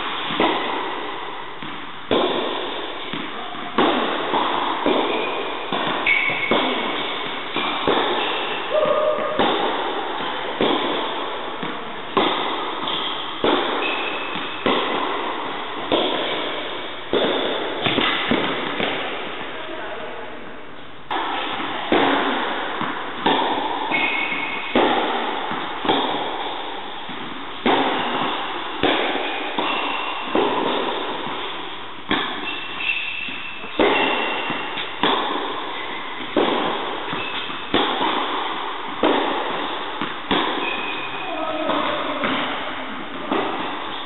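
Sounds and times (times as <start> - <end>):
tennis ball bounces: 0.0 - 19.5, 21.1 - 44.0
rackets hitting tennis balls: 0.0 - 44.0.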